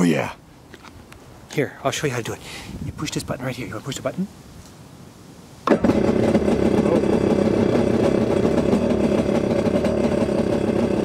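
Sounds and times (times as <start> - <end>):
jet ski engine starting and idling: 5.6 - 11.0.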